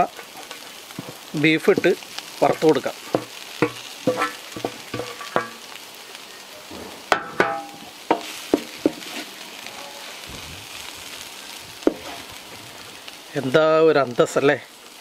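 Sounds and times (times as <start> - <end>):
frying sizzle: 0.0 - 15.0
wooden spatula knocking on pan: 3.1 - 5.6, 7.1 - 9.0.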